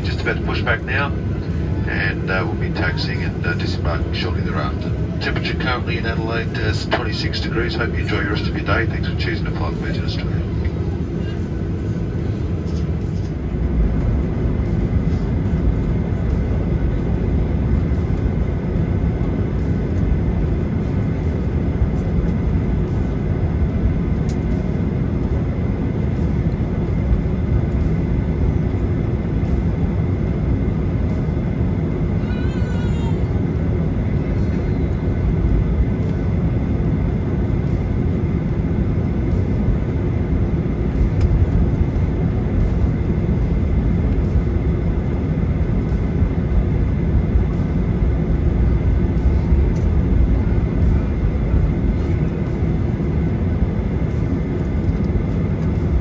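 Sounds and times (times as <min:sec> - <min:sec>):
airliner engines rumbling: 0:00.0 - 0:56.0
faint steady whine: 0:00.0 - 0:56.0.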